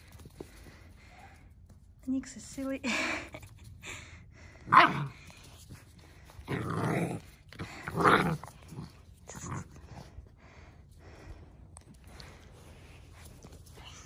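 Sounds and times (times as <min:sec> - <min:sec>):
puppies growling in play: 0:04.7 - 0:10.7.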